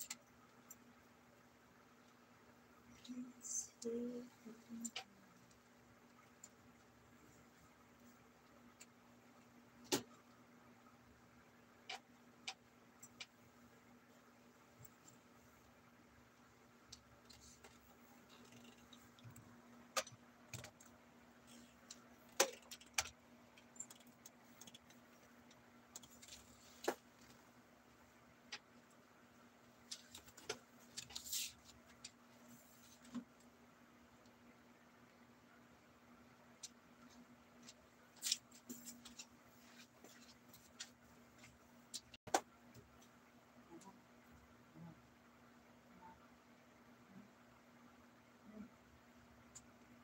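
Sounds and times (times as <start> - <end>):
faint steady hum: 0.0 - 50.0
faint clicks and knocks: 3.0 - 10.5, 11.6 - 13.7, 16.4 - 35.2, 36.3 - 44.6.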